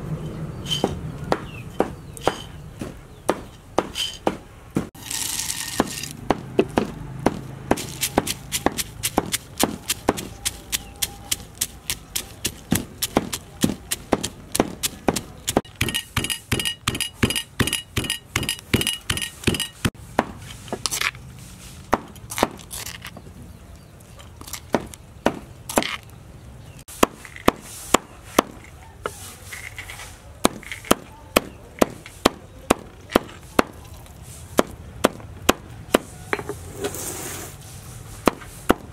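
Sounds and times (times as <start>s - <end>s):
cleaver chopping on wooden board: 0.8s - 4.9s, 5.8s - 19.6s, 21.9s - 22.6s, 27.0s - 28.6s, 30.4s - 33.8s, 34.6s - 36.5s, 38.2s - 38.9s
peanuts rattling into bowl: 5.0s - 6.2s
pestle pounding in stone mortar: 5.6s - 20.4s, 30.4s - 33.9s, 34.6s - 36.5s.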